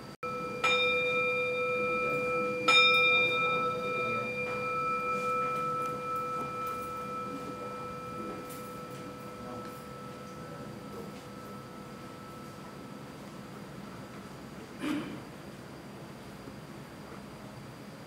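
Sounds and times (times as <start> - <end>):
bowl bell ringing: 0.2 - 14.0.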